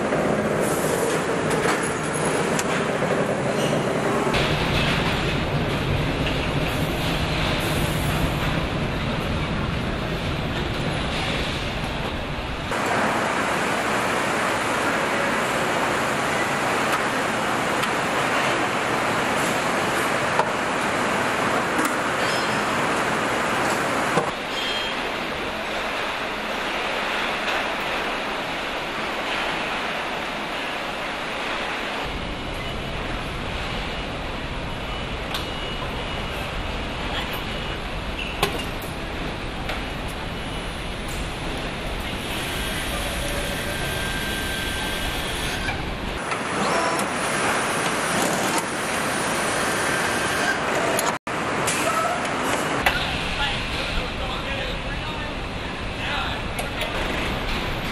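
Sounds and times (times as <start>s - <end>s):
assembly line machinery din: 0.0s - 54.3s
din of air and motors: 41.1s - 50.6s.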